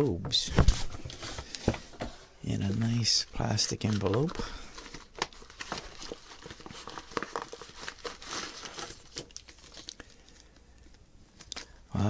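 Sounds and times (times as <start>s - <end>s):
plastic bag crinkling: 2.6s - 11.8s.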